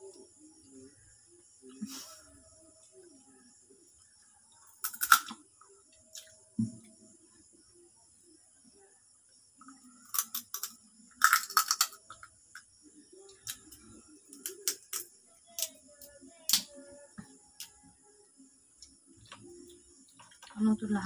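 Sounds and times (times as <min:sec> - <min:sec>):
crab shell cracking: 0:10.1 - 0:12.1, 0:14.3 - 0:15.7.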